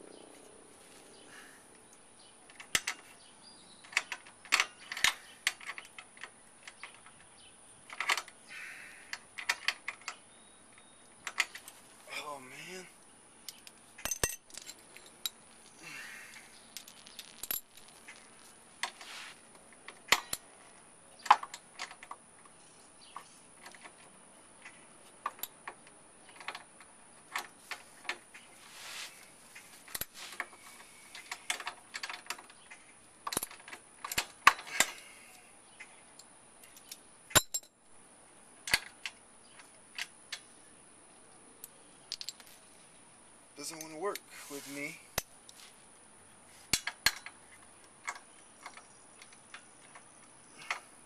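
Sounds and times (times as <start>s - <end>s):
metal tools and bolts clinking: 13.5s - 18.2s, 19.8s - 20.5s, 29.8s - 35.0s, 36.7s - 37.8s.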